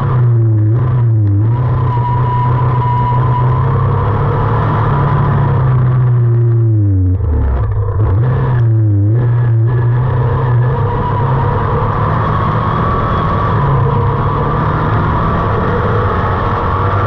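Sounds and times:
racing buggy engine revving: 0.0 - 17.0.

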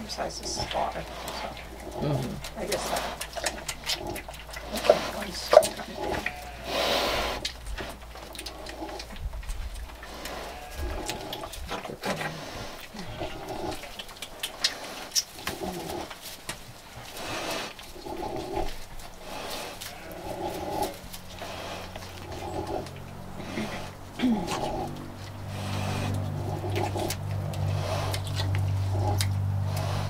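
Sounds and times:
straw rustling: 0.0 - 30.0
sow grunting softly: 0.5 - 3.2, 17.2 - 28.3.

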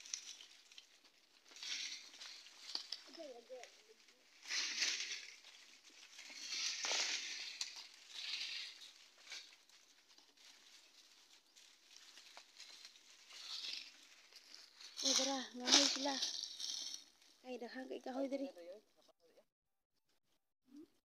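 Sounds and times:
twigs snapping: 0.0 - 3.8, 4.4 - 17.3
footsteps crunching dry leaves: 0.0 - 17.4.

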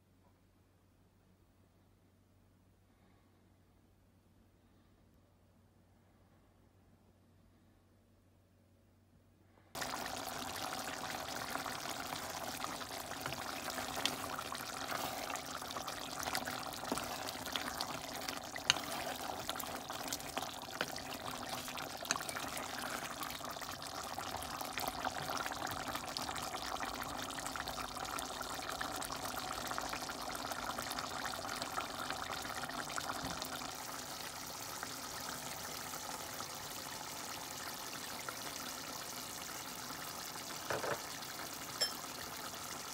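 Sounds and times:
meat simmering in a pot: 9.8 - 42.9.

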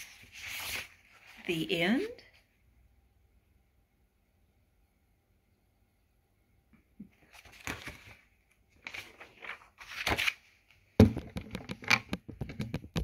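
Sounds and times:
book pages rustling: 0.0 - 1.4, 7.1 - 13.0.

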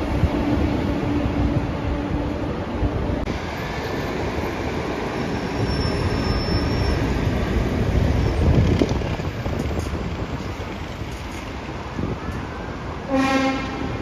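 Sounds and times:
train rumbling on tracks: 0.0 - 14.0
high wheel squeal: 5.1 - 8.8.

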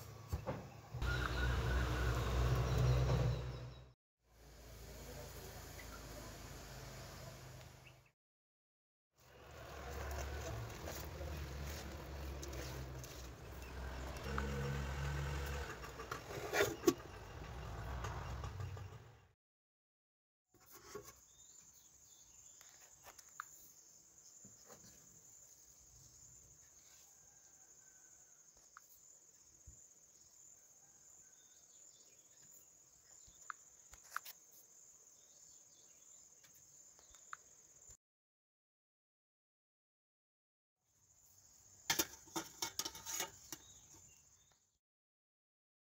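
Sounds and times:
metal lid scraping: 11.8 - 17.2, 41.9 - 44.0.

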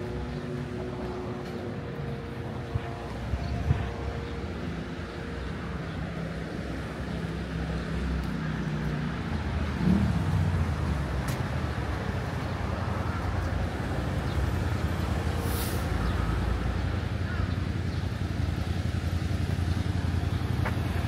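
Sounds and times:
low traffic rumble: 0.0 - 21.0
vehicle engine running: 16.0 - 21.0.

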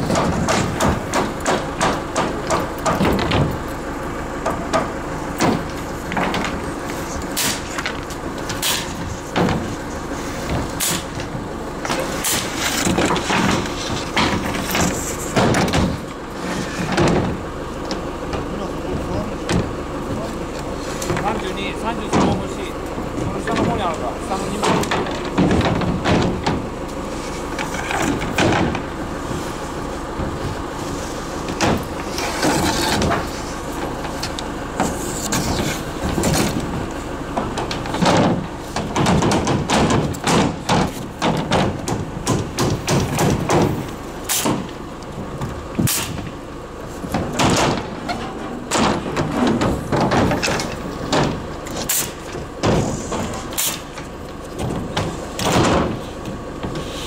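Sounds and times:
boards knocking down: 0.0 - 3.6, 4.5 - 17.5, 21.0 - 29.4, 31.4 - 44.8, 47.0 - 57.0
nail guns firing: 45.8 - 46.2.

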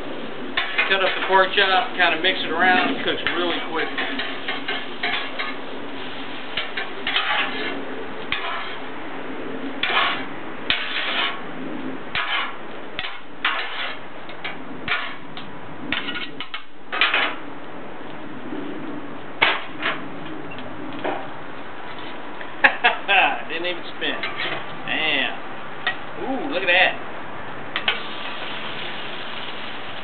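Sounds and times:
metal spatulas scraping griddle: 0.6 - 5.6, 6.6 - 8.9, 9.8 - 11.4, 12.1 - 14.0, 14.9 - 15.2, 15.9 - 17.3, 24.0 - 24.6
food sizzling on griddle: 2.4 - 7.7, 27.8 - 30.0.

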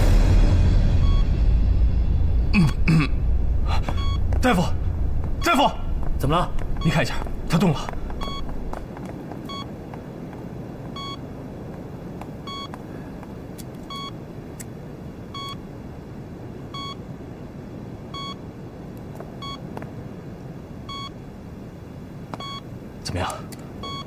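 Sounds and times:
heart monitor beeping: 3.7 - 9.8, 10.9 - 11.3, 12.4 - 12.8, 13.8 - 14.2, 15.3 - 15.6, 16.7 - 17.0, 18.1 - 18.4, 19.4 - 19.8, 20.9 - 21.2, 22.4 - 22.6, 23.8 - 24.0.

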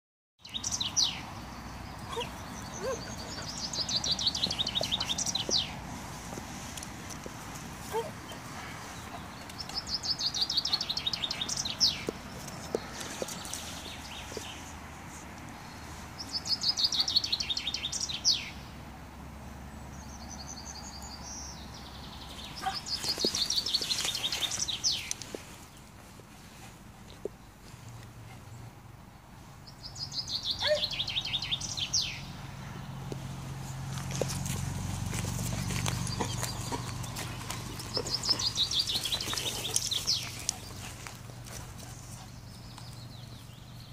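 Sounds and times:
chaffinch singing: 0.4 - 14.8, 20.1 - 25.9, 35.2 - 43.9.

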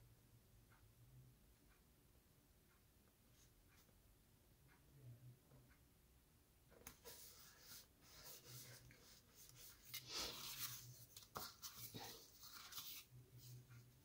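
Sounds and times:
paper rustling and sliding: 7.0 - 13.7.

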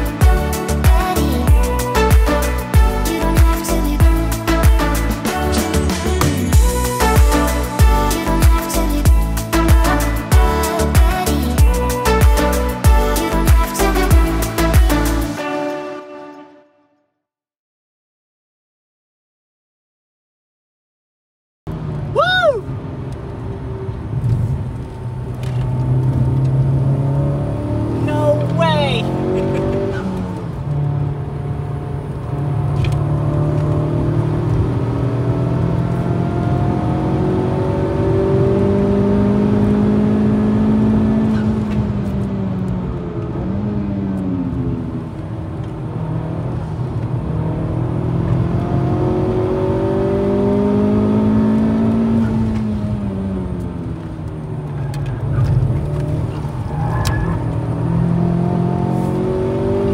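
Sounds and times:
car engine revving hard: 25.8 - 42.2, 43.2 - 53.6, 55.2 - 59.9.

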